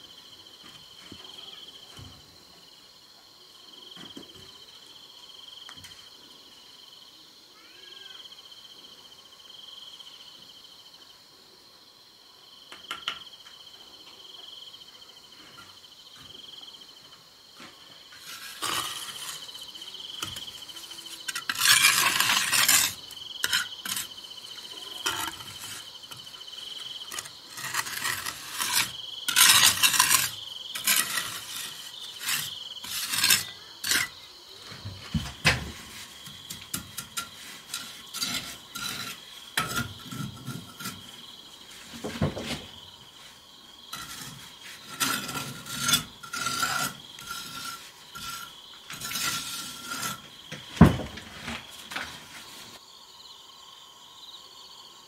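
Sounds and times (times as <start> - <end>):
crickets chirring: 0.0 - 55.0
trowel scraping mortar on brick: 18.2 - 34.2, 34.8 - 41.2, 43.9 - 52.8.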